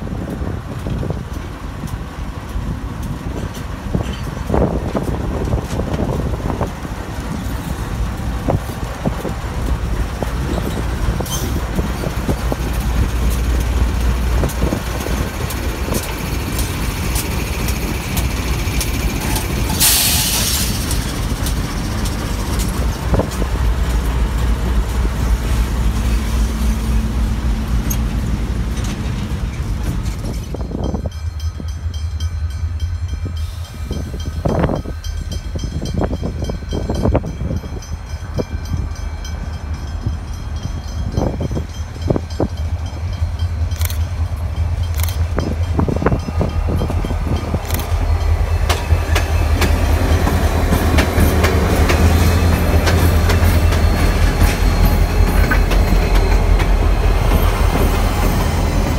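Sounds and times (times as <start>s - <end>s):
diesel locomotive engine rumble: 0.0s - 58.9s
air hiss: 19.6s - 21.2s.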